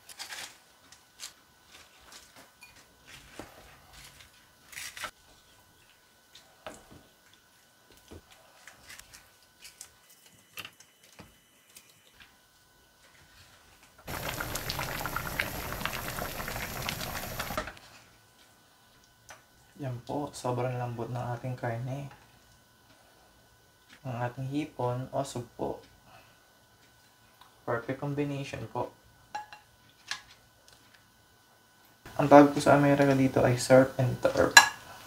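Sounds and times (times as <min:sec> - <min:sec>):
stew bubbling loudly: 0:14.1 - 0:17.6.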